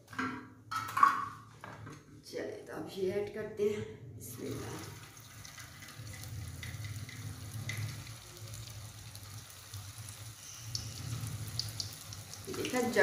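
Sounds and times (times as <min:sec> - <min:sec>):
low steady hum: 0:02.0 - 0:13.0
food sizzling in hot oil: 0:04.4 - 0:13.0.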